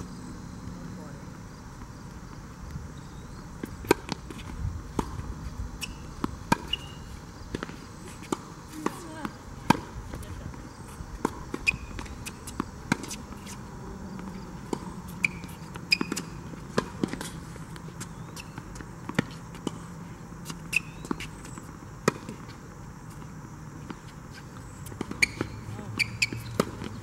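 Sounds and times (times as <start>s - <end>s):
tennis ball hit with rackets: 3.8s - 5.2s, 5.8s - 7.0s, 7.6s - 10.2s, 25.0s - 27.0s
ball bouncing on hard court: 24.8s - 27.0s.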